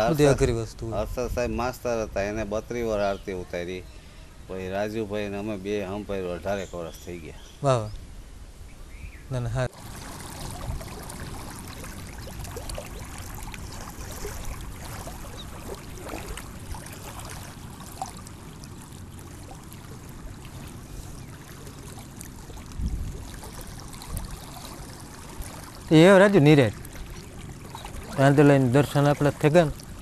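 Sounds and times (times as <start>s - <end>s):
waves lapping on stony shore: 9.7s - 30.0s
wind rumbling on microphone: 9.8s - 30.0s.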